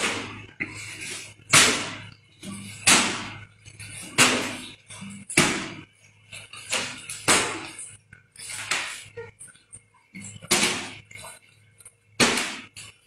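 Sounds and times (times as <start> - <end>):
sharp slaps: 1.5 - 2.0, 2.9 - 3.3.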